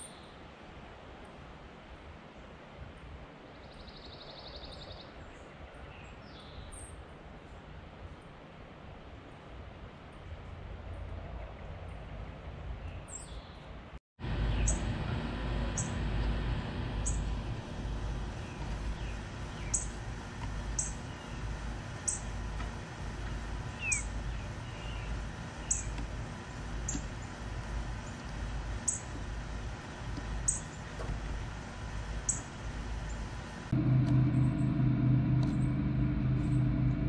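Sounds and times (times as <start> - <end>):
steady low rumble: 14.2 - 37.0
high bird chirps: 18.4 - 20.0, 20.8 - 21.4, 22.1 - 22.4, 23.8 - 26.0, 28.9 - 29.1, 30.5 - 30.8.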